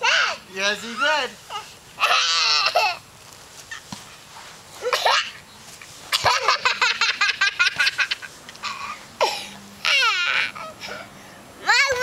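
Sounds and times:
toddler laughing: 0.0 - 3.0, 6.1 - 9.0, 9.8 - 11.1.

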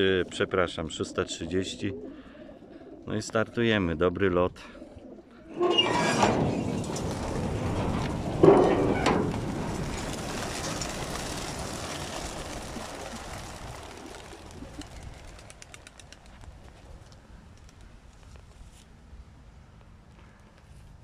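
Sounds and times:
pigeons flapping wings: 6.7 - 18.2.

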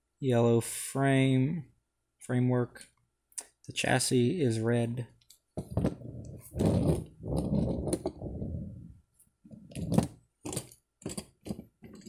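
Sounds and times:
hands rubbing plastic toy: 5.6 - 12.0.

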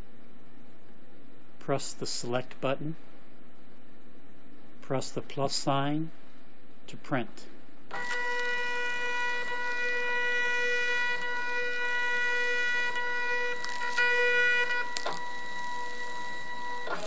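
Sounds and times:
printer motor whine: 7.9 - 17.0.

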